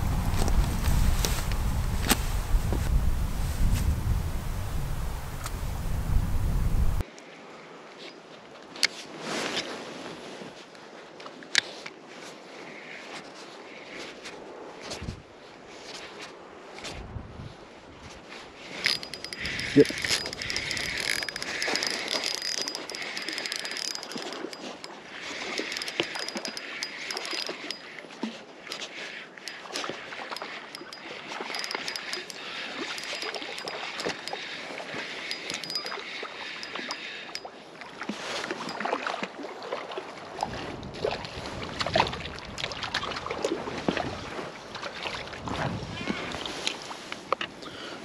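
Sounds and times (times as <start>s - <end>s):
footsteps on wet rocks: 0.0s - 4.0s
fishing reel ticking: 18.7s - 28.1s, 29.4s - 37.5s
fish splashing: 18.7s - 28.2s.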